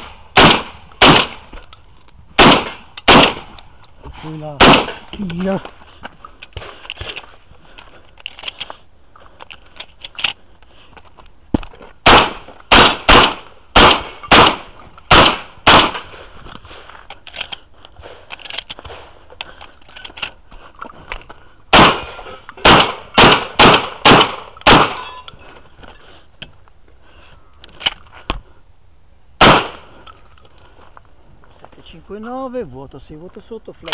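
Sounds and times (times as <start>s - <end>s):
shotgun shots: 0.0s - 1.5s, 2.4s - 3.6s, 4.5s - 5.1s, 12.0s - 16.2s, 21.7s - 25.1s, 29.4s - 29.9s
gun handling clicks: 0.0s - 4.0s, 4.6s - 11.4s, 12.5s - 25.6s, 27.6s - 28.3s.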